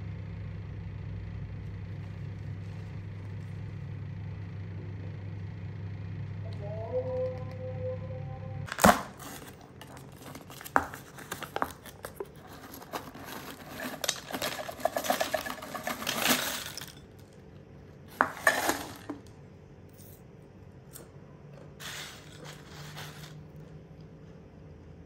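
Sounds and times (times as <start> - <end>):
chips clattering into a ceramic dish: 12.5 - 17.4, 18.1 - 19.3.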